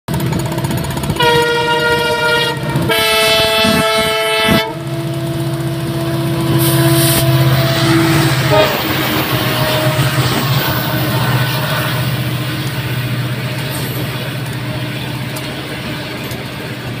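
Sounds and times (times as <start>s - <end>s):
diesel engines droning: 0.1s - 17.0s
locomotive horn blasts: 1.1s - 12.8s.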